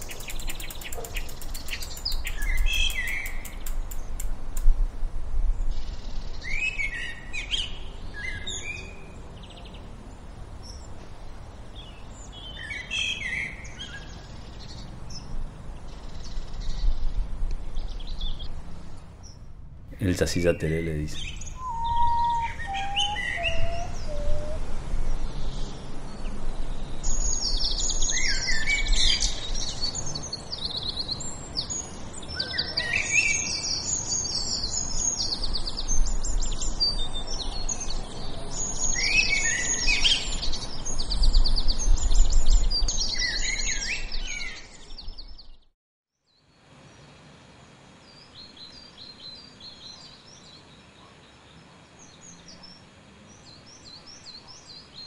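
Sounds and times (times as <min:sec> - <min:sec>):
birds chirping and trilling: 0:00.0 - 0:04.4, 0:05.5 - 0:45.7, 0:48.0 - 0:55.0
whistled falling notes: 0:21.6 - 0:24.6.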